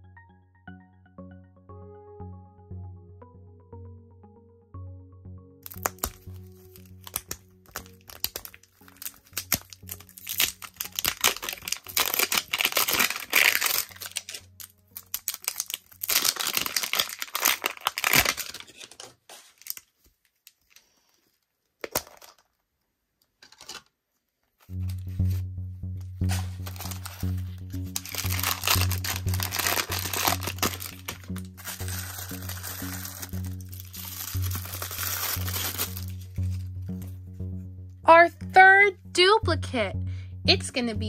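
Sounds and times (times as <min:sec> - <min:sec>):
plastic wrapping crinkling: 0:05.6 - 0:22.7, 0:23.3 - 0:25.5, 0:26.2 - 0:37.1.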